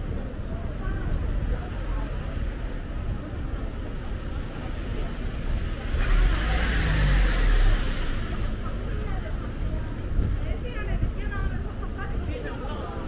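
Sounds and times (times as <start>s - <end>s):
background traffic: 0.0s - 13.0s
vehicle passing close by: 5.6s - 8.8s.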